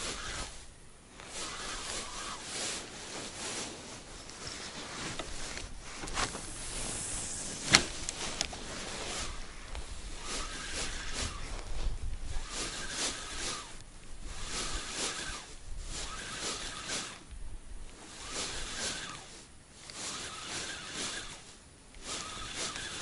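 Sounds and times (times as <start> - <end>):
fishing reel whirring: 0.0 - 0.7, 1.3 - 2.8, 10.0 - 17.3, 18.0 - 23.0
steady hiss: 0.0 - 23.0.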